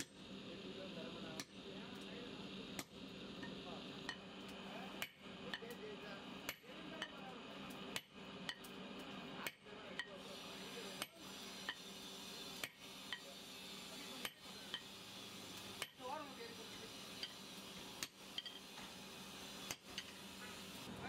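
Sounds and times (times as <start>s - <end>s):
hammer clanging on hot steel: 0.0s - 0.2s, 9.4s - 12.0s, 12.6s - 13.4s, 14.0s - 16.0s, 16.6s - 19.0s, 19.6s - 20.8s.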